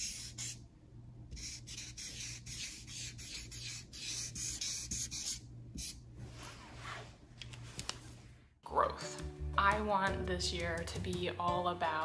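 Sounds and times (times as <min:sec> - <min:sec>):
marker squeaking on paper: 0:00.0 - 0:00.6, 0:01.3 - 0:06.0.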